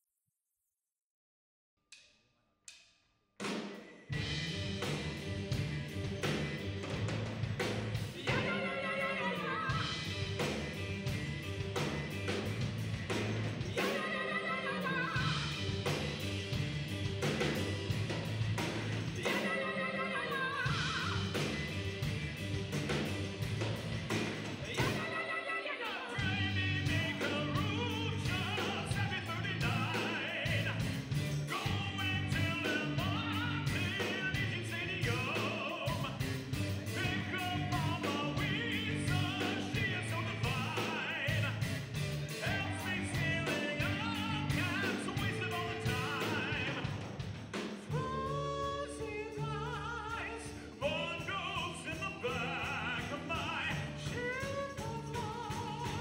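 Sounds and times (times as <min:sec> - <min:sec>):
rock band playing: 0:03.4 - 0:56.0
man singing: 0:08.1 - 0:10.4, 0:13.6 - 0:15.7, 0:19.1 - 0:21.4, 0:24.6 - 0:47.1, 0:47.8 - 0:56.0.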